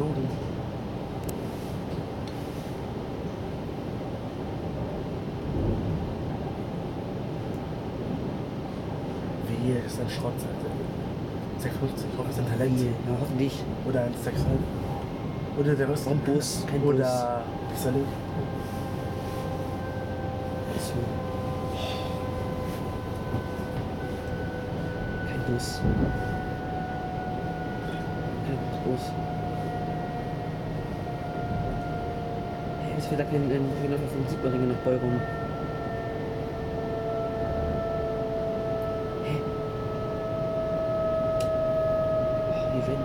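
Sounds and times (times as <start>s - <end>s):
train wheels rumbling on track: 0.0s - 35.7s
electric drive whine: 12.2s - 43.0s.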